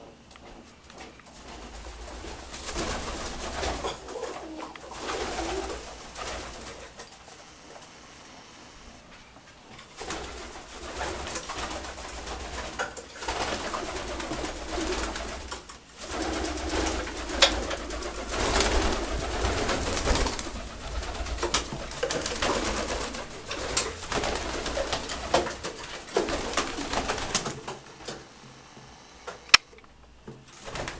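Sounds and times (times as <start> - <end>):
constant rustling noise: 0.0 - 30.9
pigeons cooing: 1.4 - 7.5, 10.0 - 28.2
scattered clicks: 29.5 - 30.0.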